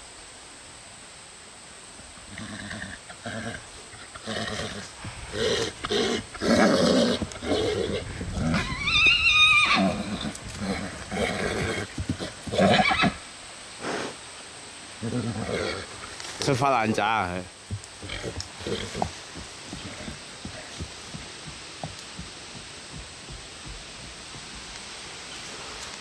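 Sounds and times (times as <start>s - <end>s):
horse neighing and whinnying: 2.3s - 13.2s, 15.0s - 16.0s, 18.0s - 19.2s.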